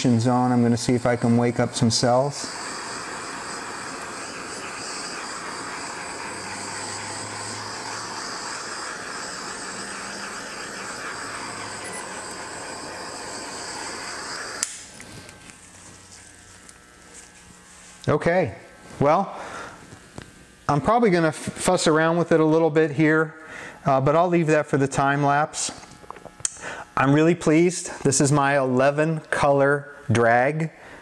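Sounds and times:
torch flame hissing: 0:00.0 - 0:18.1
torch shutoff click: 0:00.9 - 0:15.6.

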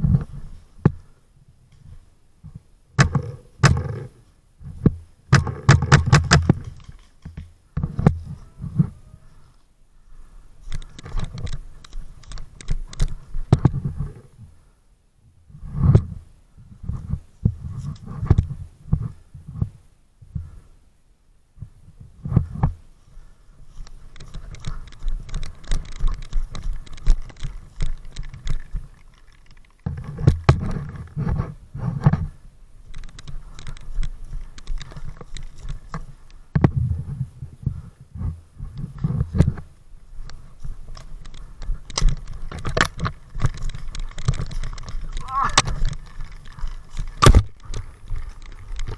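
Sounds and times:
sharp clicks: 0:10.6 - 0:13.8, 0:23.8 - 0:31.1, 0:32.9 - 0:36.7, 0:40.2 - 0:48.9.

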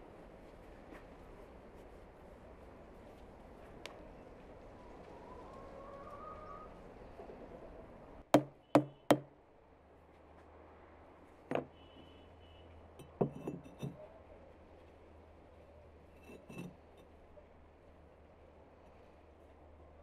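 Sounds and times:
rubber mallet tapping bricks: 0:08.4 - 0:09.3.

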